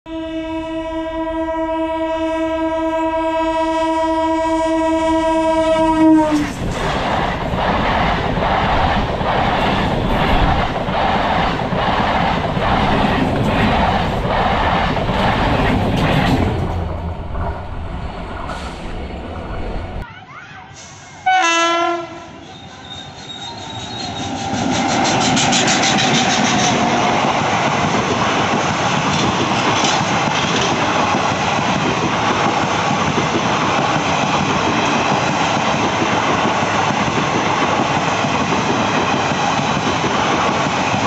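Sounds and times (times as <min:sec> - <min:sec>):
train horn: 0:00.1 - 0:06.6, 0:20.5 - 0:24.4
train wheels clattering: 0:06.3 - 0:17.6, 0:23.0 - 0:41.0.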